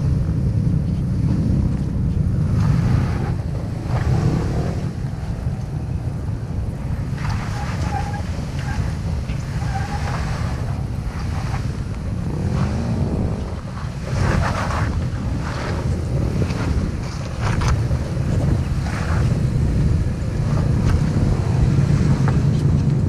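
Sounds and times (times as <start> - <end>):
car engine revving: 0.0 - 23.0
wind buffeting microphone: 0.0 - 23.0.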